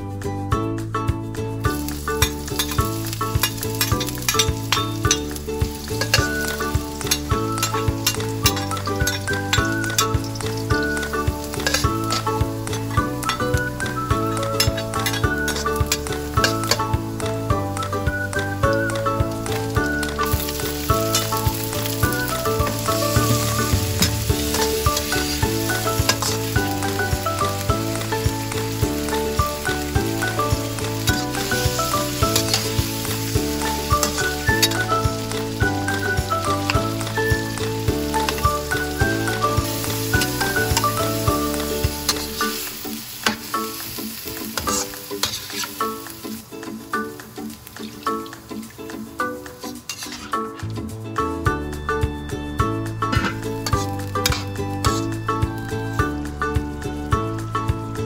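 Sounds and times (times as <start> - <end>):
background music: 0.0 - 58.0
metal spatula stirring in wok: 1.7 - 13.5, 14.6 - 16.9, 19.5 - 46.2, 49.4 - 50.7, 53.1 - 55.1
onion sizzling in oil: 1.7 - 50.7, 53.0 - 57.1.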